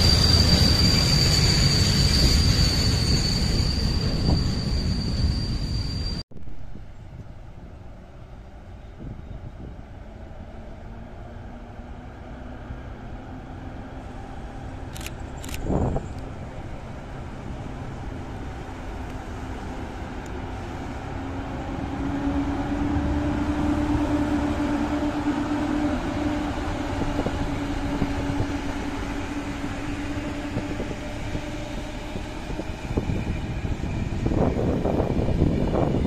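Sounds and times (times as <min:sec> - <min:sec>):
electric locomotive hum: 0:00.0 - 0:36.0
rolling rumble of train coaches: 0:00.0 - 0:36.0.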